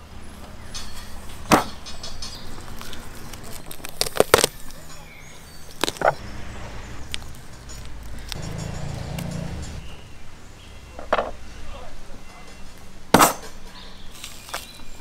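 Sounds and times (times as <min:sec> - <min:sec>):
knocks and cracks of butchering: 0:01.4 - 0:01.9, 0:02.7 - 0:04.8.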